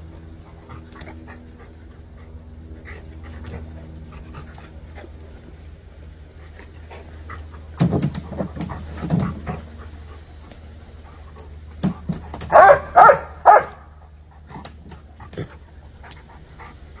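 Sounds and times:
dog barking: 12.5 - 13.9.

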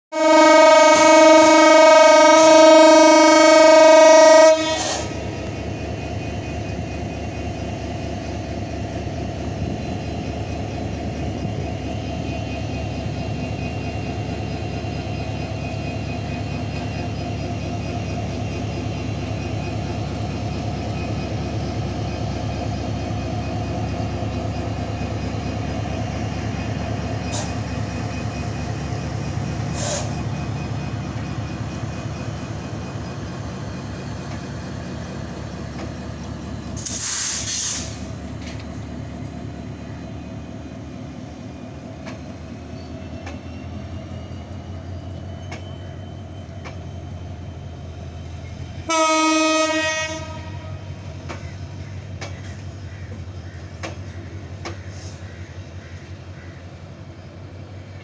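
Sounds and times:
locomotive horn blast: 0.1 - 5.2, 48.8 - 50.9.

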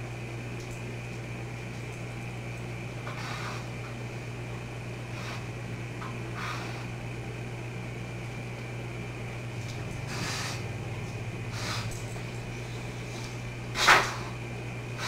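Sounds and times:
refrigerator low hum: 0.0 - 15.0
dog sniffing and snorting: 3.0 - 4.0, 5.0 - 7.0, 9.9 - 10.8, 11.4 - 15.0.

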